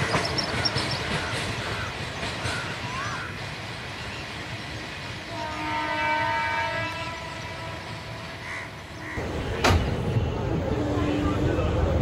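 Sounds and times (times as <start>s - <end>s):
passing train rumble: 0.0s - 12.0s
distant train horn: 5.2s - 9.4s, 10.2s - 12.0s.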